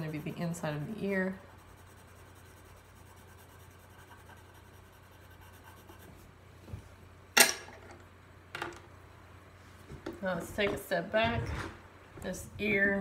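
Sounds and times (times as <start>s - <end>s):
pencil scratching on paper: 0.0s - 6.3s.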